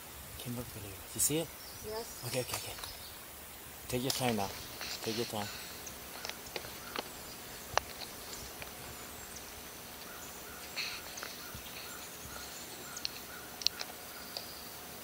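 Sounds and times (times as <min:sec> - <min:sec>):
insects buzzing: 0:00.0 - 0:15.0
bird chirps: 0:01.4 - 0:03.2, 0:05.0 - 0:14.8.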